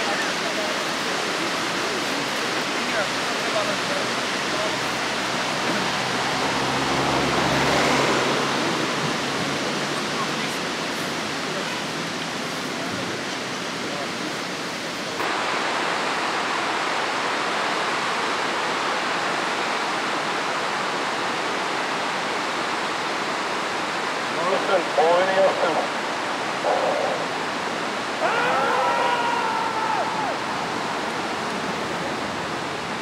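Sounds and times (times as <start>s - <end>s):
river rushing over rocks: 0.0s - 33.0s.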